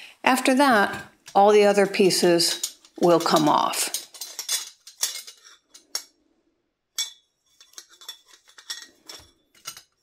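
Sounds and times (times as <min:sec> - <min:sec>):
metal parts clinking and clicking: 0:02.5 - 0:06.1, 0:07.0 - 0:10.0.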